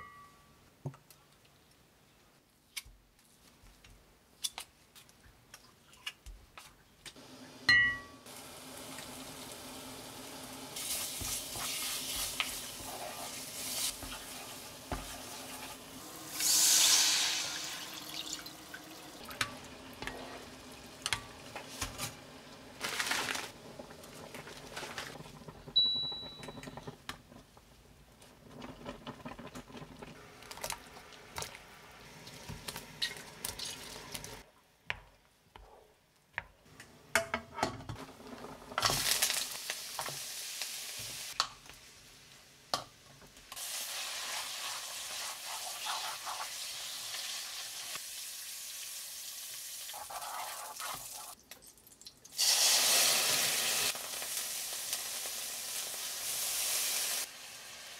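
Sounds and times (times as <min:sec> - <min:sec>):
cooktop humming: 0:07.0 - 0:51.7
liquid hissing in hot pot: 0:10.8 - 0:18.5, 0:52.4 - 0:57.4.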